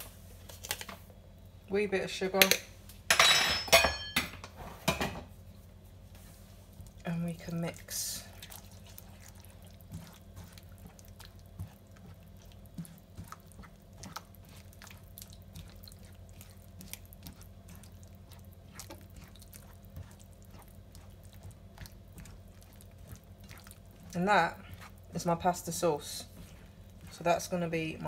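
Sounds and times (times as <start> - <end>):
spatula stirring wet sauce: 6.2 - 28.0.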